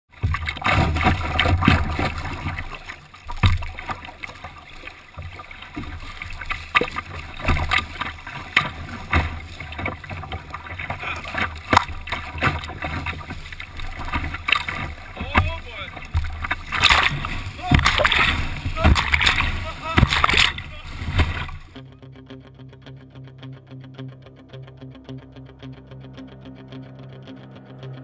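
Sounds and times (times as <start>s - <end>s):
rough water rushing: 0.1s - 21.8s
sharp splashes: 0.1s - 21.8s
water slapping against hull: 0.1s - 21.8s
knocks on canoe: 0.2s - 4.1s, 5.2s - 21.7s.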